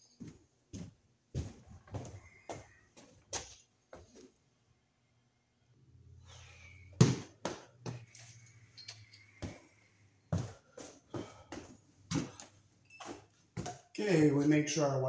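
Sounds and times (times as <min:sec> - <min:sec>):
footsteps: 0:00.0 - 0:04.4, 0:07.0 - 0:13.9.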